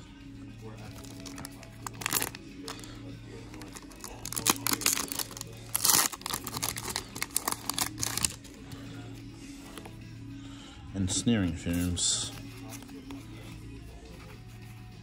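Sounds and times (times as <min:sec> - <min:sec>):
wrapper crinkling and tearing: 0:00.9 - 0:02.9, 0:03.5 - 0:08.6.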